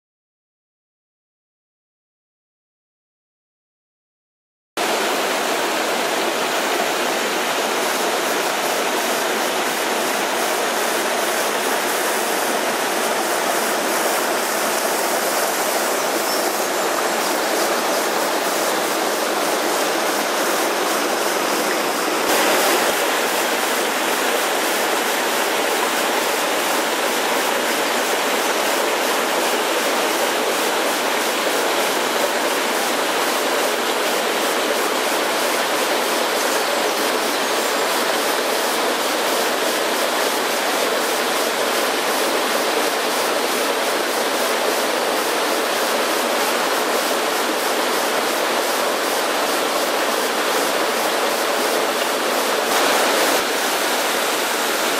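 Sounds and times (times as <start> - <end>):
stream rushing over rocks: 4.8 - 54.9.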